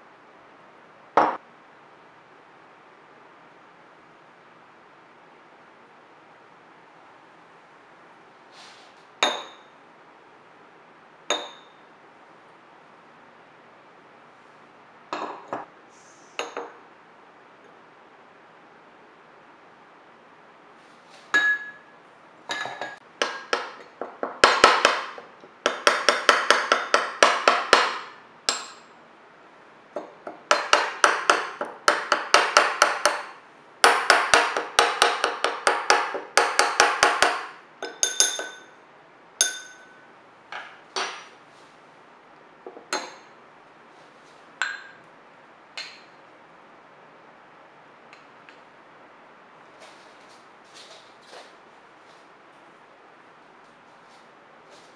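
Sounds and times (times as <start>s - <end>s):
spoon clinking against bowl: 9.2s - 9.7s, 11.3s - 11.8s, 21.3s - 21.9s, 22.5s - 23.5s, 37.8s - 38.8s, 39.4s - 40.0s.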